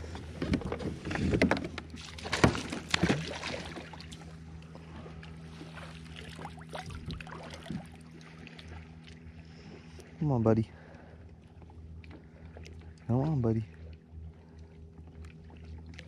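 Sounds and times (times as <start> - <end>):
steady low hum: 0.0 - 16.0
water splashing: 1.9 - 4.4, 5.5 - 9.6.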